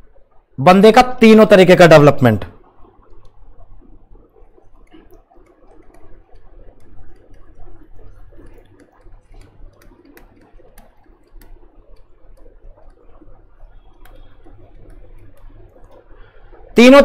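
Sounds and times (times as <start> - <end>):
mains hum: 0.0 - 17.0
stylus tapping on tablet: 8.4 - 13.0.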